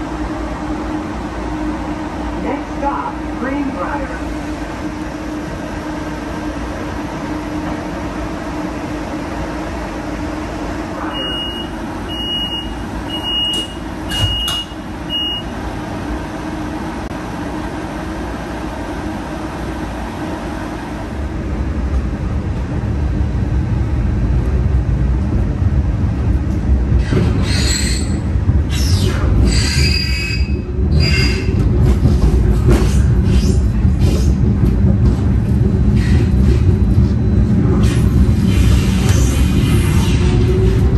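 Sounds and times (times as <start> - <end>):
streetcar humming: 0.0 - 40.9
streetcar running: 0.0 - 40.9
short high beeps: 11.1 - 15.5
wheels squealing on rails: 27.0 - 34.5.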